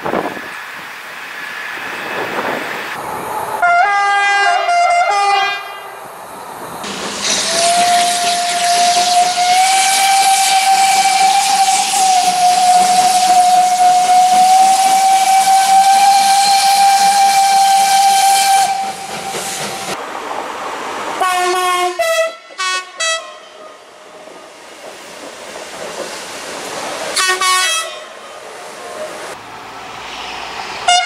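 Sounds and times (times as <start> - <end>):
electric train horn blasts: 3.6 - 6.0, 7.4 - 19.0, 21.2 - 23.8, 27.2 - 28.2
steam locomotive whistle: 3.6 - 6.0, 7.2 - 20.0, 21.2 - 23.8, 27.2 - 28.2
steam hissing: 6.1 - 20.0, 23.9 - 27.4.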